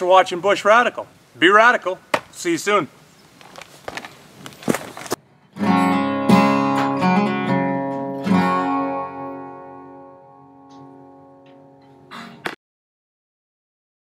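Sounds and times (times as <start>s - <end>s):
acoustic guitar strumming: 5.6s - 12.5s.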